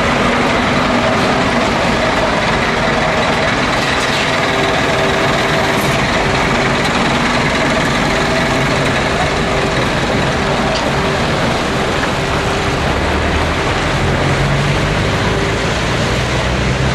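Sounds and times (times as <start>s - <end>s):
road noise: 0.0s - 16.9s
truck engine droning: 0.0s - 16.9s.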